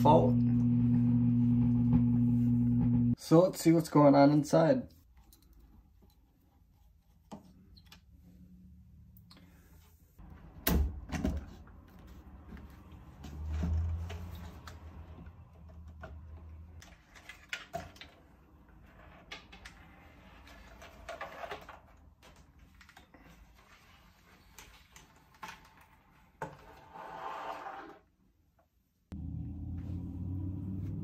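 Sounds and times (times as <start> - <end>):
low hum: 0.0 - 3.2, 29.1 - 31.0.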